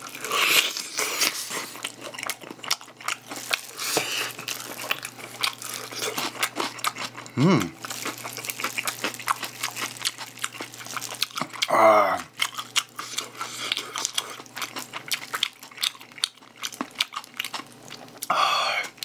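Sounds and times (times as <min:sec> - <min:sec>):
fried chicken crunching: 0:00.0 - 0:19.0
plastic glove crinkling: 0:03.1 - 0:06.4, 0:07.8 - 0:11.6
person humming: 0:07.3 - 0:07.8, 0:11.7 - 0:12.3.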